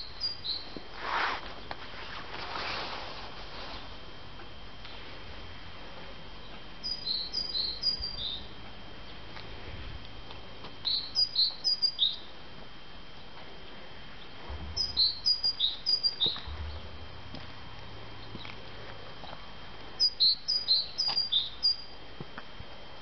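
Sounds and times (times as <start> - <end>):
high bird-like chirping: 0.0 - 0.8, 6.8 - 8.5, 10.8 - 12.3, 14.8 - 16.8, 20.0 - 21.9
faint high whine: 0.0 - 23.0.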